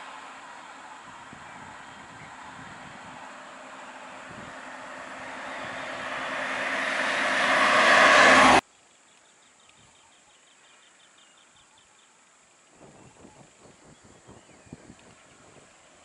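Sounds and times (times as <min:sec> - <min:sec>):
van driving past: 0:00.0 - 0:08.6.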